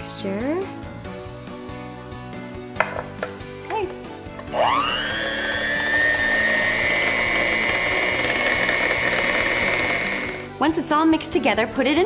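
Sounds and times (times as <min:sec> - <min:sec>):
electric hand mixer whine: 0:04.5 - 0:10.5.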